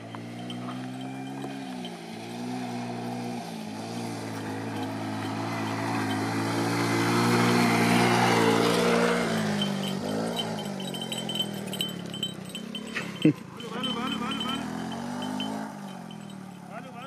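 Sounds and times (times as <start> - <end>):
small motorcycle engine passing: 0.0 - 17.0.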